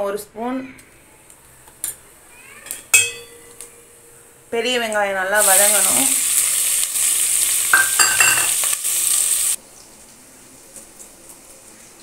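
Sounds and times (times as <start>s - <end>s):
onions sizzling in hot oil: 4.6s - 12.0s.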